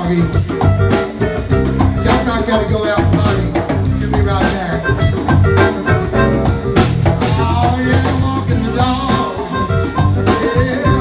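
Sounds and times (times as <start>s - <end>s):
drum kit beat: 0.0s - 11.0s
electric guitar: 0.0s - 11.0s
hand drum: 0.0s - 11.0s
harmonica wailing: 3.9s - 11.0s.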